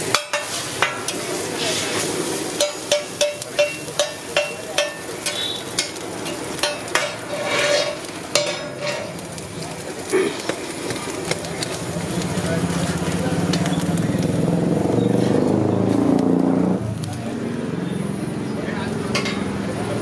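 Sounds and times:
bread sizzling on griddle: 0.0s - 20.0s
metal spatula scraping and tapping: 0.1s - 1.3s, 2.6s - 9.3s, 19.1s - 19.5s.

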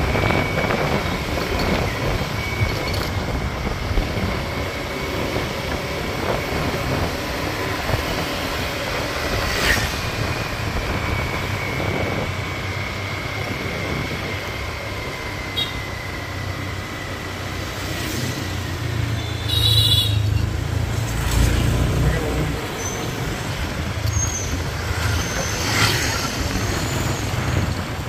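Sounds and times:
scooter engine and road rumble: 0.0s - 28.0s
high-pitched horn beep: 15.5s - 15.9s.

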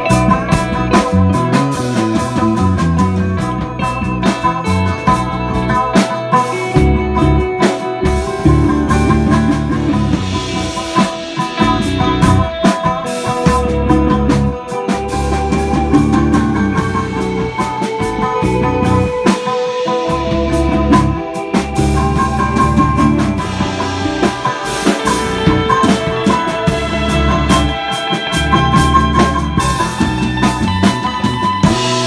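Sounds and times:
cigar box guitar: 0.0s - 32.0s
drum and cymbal hits: 0.0s - 32.0s
electric bass: 0.0s - 32.0s
electric guitar: 0.0s - 32.0s.

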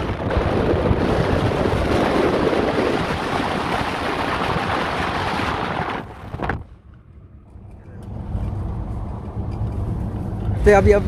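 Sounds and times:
wind rushing over microphone: 0.0s - 7.2s
car rumbling on road: 0.0s - 11.0s.

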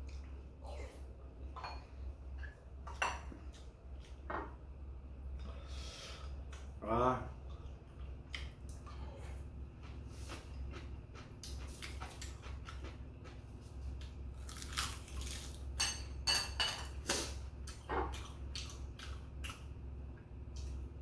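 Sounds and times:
crunchy chewing: 7.5s - 15.6s, 17.1s - 19.8s.

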